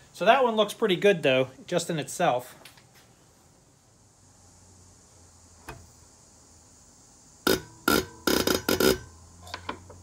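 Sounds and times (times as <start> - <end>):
injector nozzle buzzing bursts: 7.4 - 9.2.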